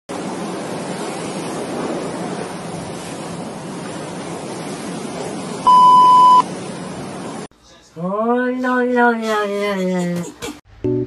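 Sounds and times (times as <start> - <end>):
electronic beep: 5.7 - 6.4.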